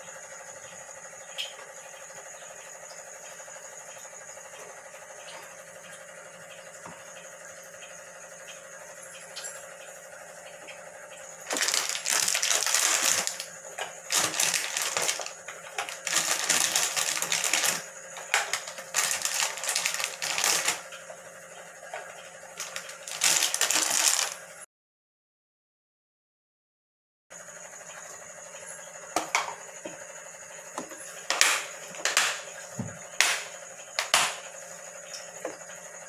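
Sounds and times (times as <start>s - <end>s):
candy clattering into metal box: 11.5s - 13.5s, 14.1s - 20.8s, 22.6s - 24.4s.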